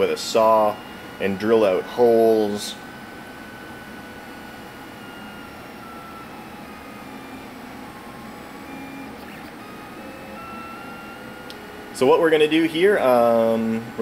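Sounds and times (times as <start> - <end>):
stepper motors whining: 5.0 - 12.5.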